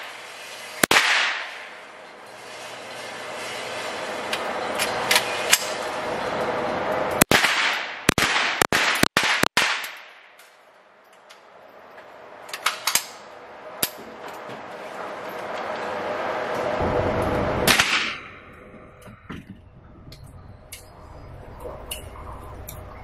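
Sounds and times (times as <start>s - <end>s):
fainter gunshots: 0.8s - 1.8s, 7.2s - 10.4s, 17.6s - 18.5s
loud rifle shots: 0.8s - 1.8s, 7.2s - 10.3s, 17.6s - 18.3s.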